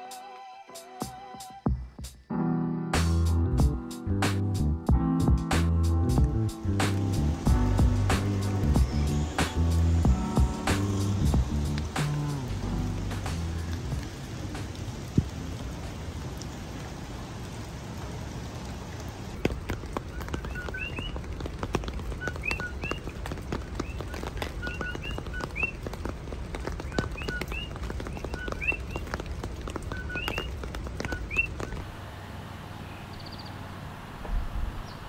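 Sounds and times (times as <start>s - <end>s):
steady rain: 3.6s - 35.0s
raindrops ticking on umbrella: 6.0s - 31.9s
birds calling rising notes: 6.3s - 17.5s, 19.3s - 35.0s.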